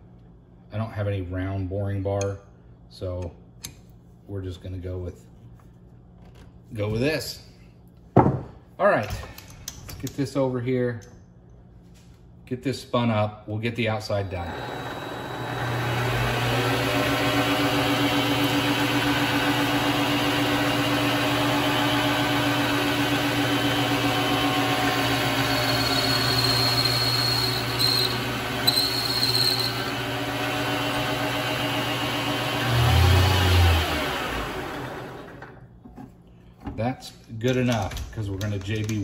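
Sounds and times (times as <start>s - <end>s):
lathe motor whine: 14.2s - 35.5s
high tone of tool cutting: 14.3s - 34.4s.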